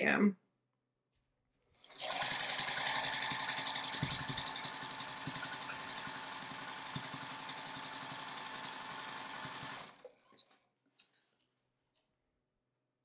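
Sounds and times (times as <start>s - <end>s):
sewing machine stitching: 1.8s - 10.6s.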